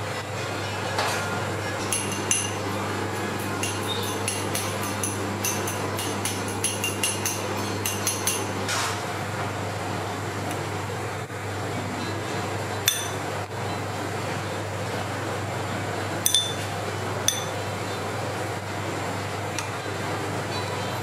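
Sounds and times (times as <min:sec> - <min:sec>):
metal spoon clinking on ceramic bowl: 0:01.8 - 0:02.6, 0:03.4 - 0:08.5, 0:12.9 - 0:13.2, 0:16.3 - 0:16.6, 0:17.3 - 0:17.6.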